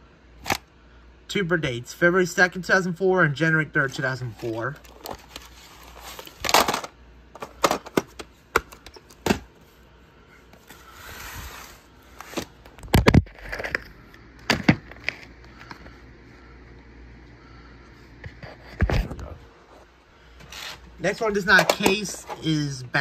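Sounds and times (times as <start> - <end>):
plastic cases clacking: 6.2 - 9.5, 21.3 - 22.5
rustling slide: 10.7 - 12.5.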